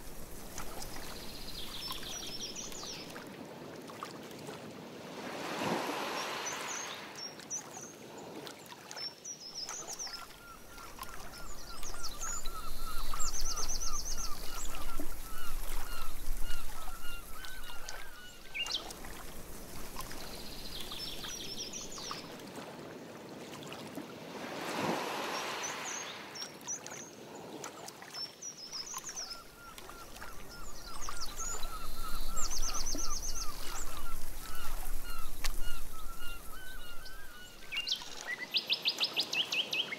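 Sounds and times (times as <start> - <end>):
canoe paddle swishing in water: 0.0 - 9.0, 9.6 - 38.4
birds calling: 10.0 - 18.9, 29.1 - 38.4.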